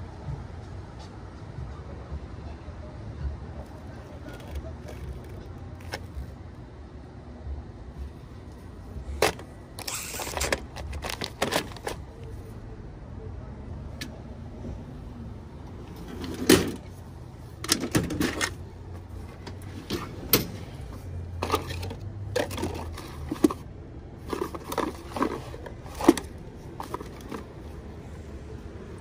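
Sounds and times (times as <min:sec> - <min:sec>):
small hard parts clicking and rattling: 0:09.0 - 0:12.3, 0:19.4 - 0:23.6, 0:24.2 - 0:27.8.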